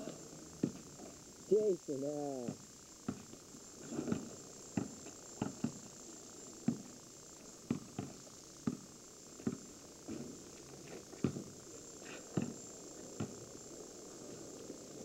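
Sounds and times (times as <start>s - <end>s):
basketball bouncing on asphalt: 0.6s - 1.1s, 2.5s - 6.0s, 6.6s - 6.9s, 7.6s - 10.5s, 11.1s - 11.6s, 13.2s - 13.4s.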